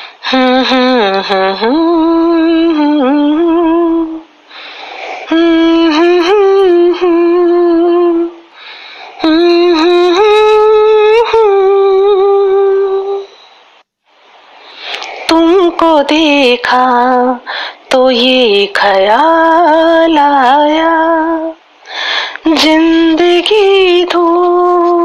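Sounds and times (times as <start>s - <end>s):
breaths: 0.0s - 0.2s, 4.5s - 5.3s, 8.5s - 9.3s, 14.6s - 15.4s, 17.4s - 17.9s, 21.8s - 22.5s
woman humming slow melody: 0.2s - 4.3s, 5.3s - 8.4s, 9.2s - 13.6s.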